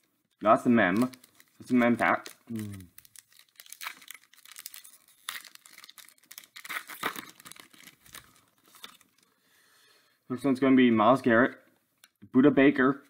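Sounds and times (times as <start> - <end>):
foil wrapper crinkling and tearing: 0.4 - 9.3.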